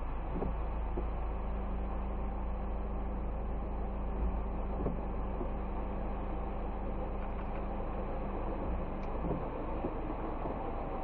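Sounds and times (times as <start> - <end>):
car idling low rumble: 0.0 - 11.0
rain: 0.0 - 11.0
windscreen wiper sweeping: 0.2 - 1.4, 4.1 - 6.2, 7.3 - 11.0.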